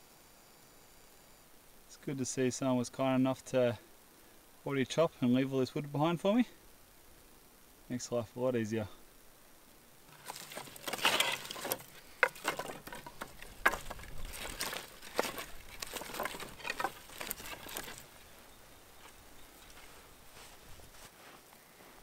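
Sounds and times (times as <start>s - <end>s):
firewood sticks clattering: 10.1s - 20.6s.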